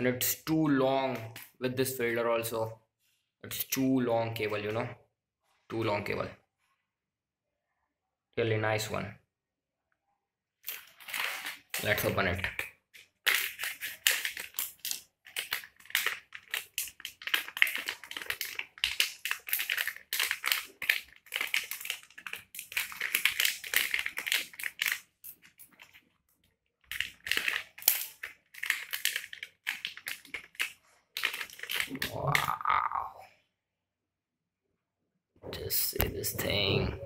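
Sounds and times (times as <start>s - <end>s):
metallised bag crinkling: 10.6s - 26.1s, 26.8s - 32.0s.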